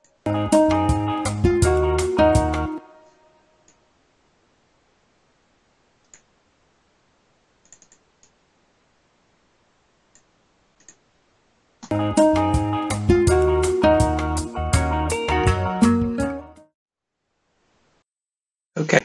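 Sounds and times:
guitar music: 0.3 - 3.0, 11.9 - 16.7
computer mouse clicks: 6.0 - 6.3, 7.6 - 8.4, 10.1 - 11.0.

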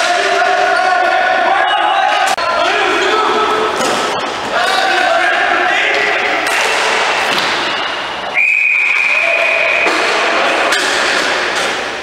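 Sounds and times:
indoor rink noise and knocks: 0.0 - 12.0
referee's whistle blast: 8.3 - 10.0.

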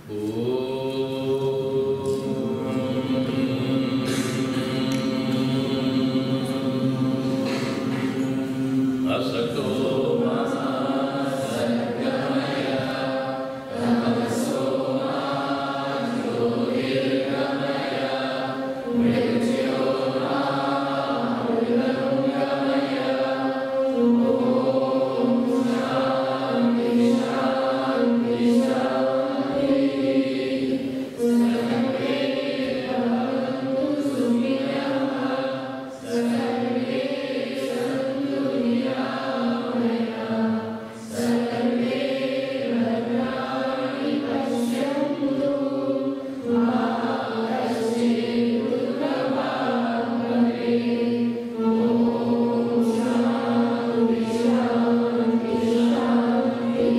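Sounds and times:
man chanting a hymn: 0.0 - 43.4.

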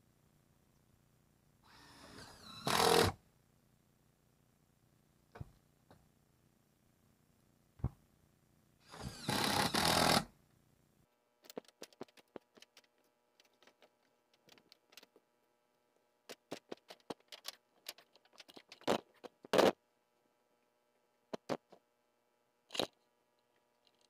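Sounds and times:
power drill whining: 1.7 - 3.2, 8.8 - 10.3.

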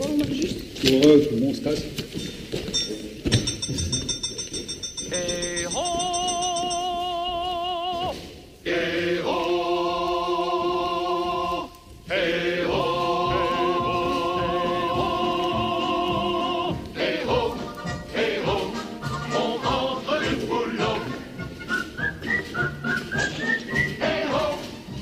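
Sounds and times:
choir singing held chords: 5.1 - 25.0.

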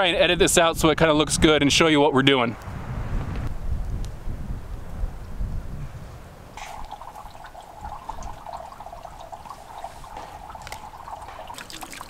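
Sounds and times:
wind rumbling on microphone: 0.0 - 11.6
small splashing drips: 6.6 - 12.0
water trickling: 6.6 - 12.0.

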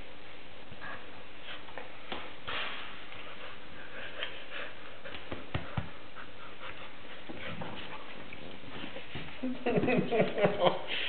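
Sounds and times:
puppy panting: 3.1 - 9.0.

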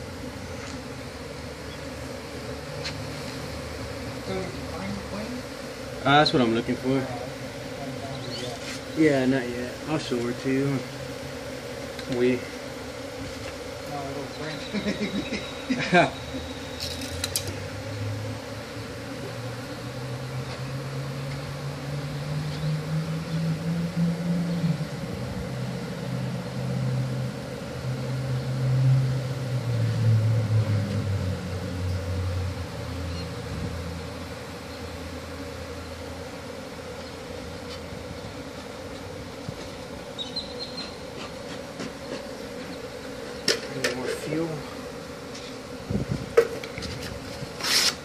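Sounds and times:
honey bees buzzing: 0.0 - 48.0
low drone: 14.4 - 36.1.

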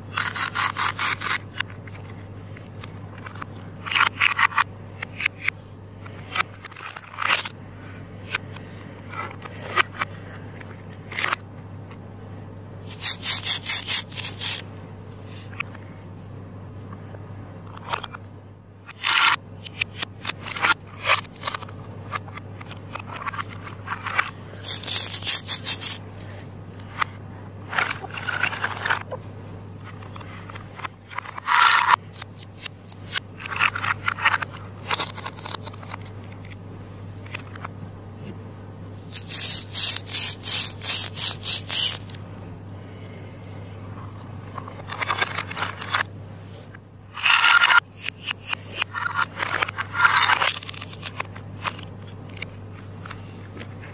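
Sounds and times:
steady low hum: 0.0 - 53.9
velcro ripping: 12.9 - 14.6, 24.6 - 26.0, 39.1 - 42.1
plastic pieces knocking: 18.9 - 26.0, 30.8 - 36.0, 39.1 - 42.1.

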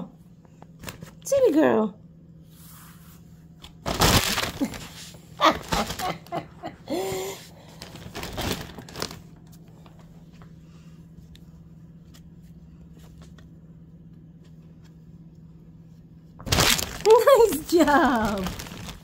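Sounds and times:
plastic wrap crinkling: 3.8 - 6.4, 7.6 - 10.0, 16.4 - 19.0.

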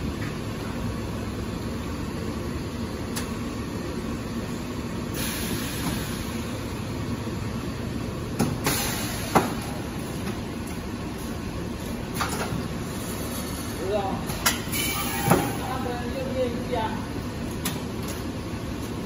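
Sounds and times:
air hiss: 5.1 - 6.4.

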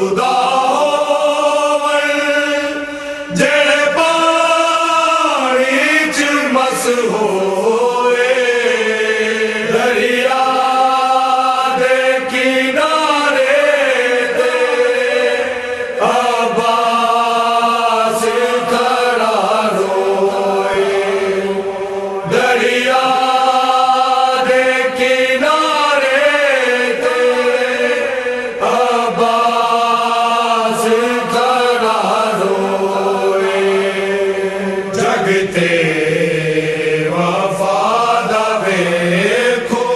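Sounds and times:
person chanting: 0.0 - 39.9.

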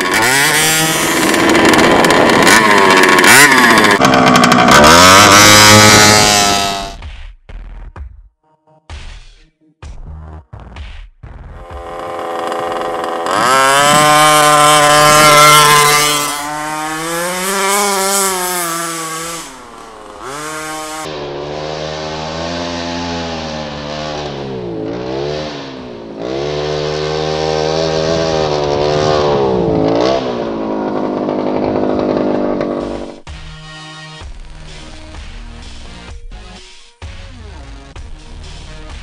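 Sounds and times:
two-stroke engine revving: 0.0 - 7.0, 11.5 - 33.3.

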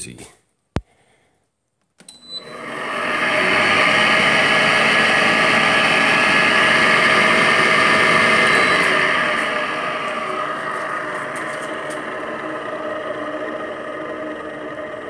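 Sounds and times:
air conditioner fan motor running: 2.2 - 15.0.

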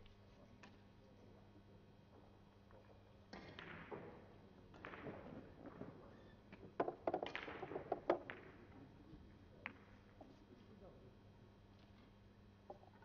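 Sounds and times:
billiard balls clicking: 6.6 - 8.5.

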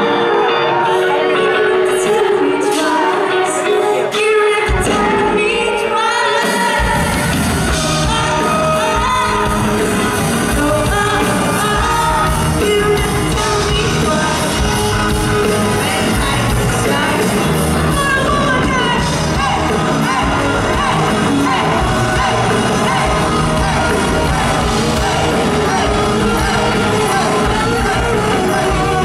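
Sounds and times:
drums: 0.0 - 29.0
electric guitars: 0.0 - 29.0
female singer singing: 0.4 - 29.0
bass guitar: 6.8 - 29.0.

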